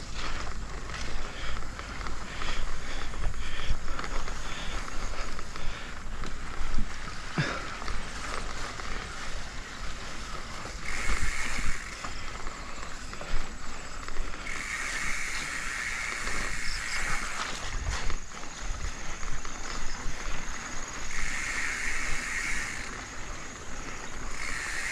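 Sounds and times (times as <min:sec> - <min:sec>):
bike knocking and rattling: 0:00.0 - 0:24.9
tyres brushing through grass: 0:00.0 - 0:24.9
wind rumbling on microphone: 0:08.0 - 0:22.9.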